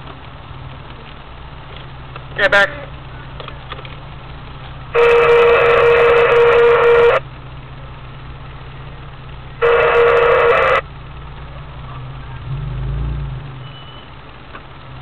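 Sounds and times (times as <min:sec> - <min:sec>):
vehicle engine running: 0:00.0 - 0:15.0
car horn blasts: 0:04.9 - 0:07.2, 0:09.6 - 0:10.8.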